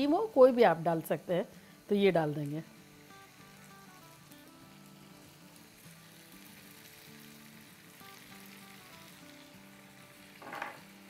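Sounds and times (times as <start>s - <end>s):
sauce simmering with faint sizzle: 0.0s - 11.0s
soft background music: 0.0s - 11.0s.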